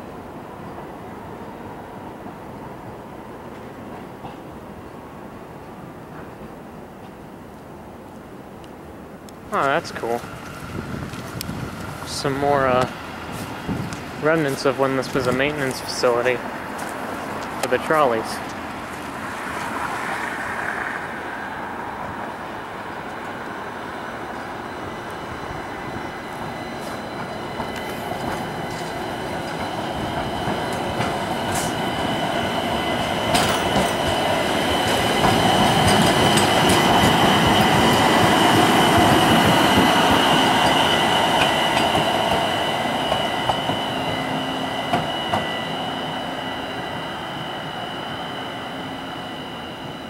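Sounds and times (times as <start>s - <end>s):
light rail car rumbling past: 0.0s - 50.0s
steady high whine: 8.7s - 50.0s
wheels clicking over rail joints: 32.9s - 42.4s.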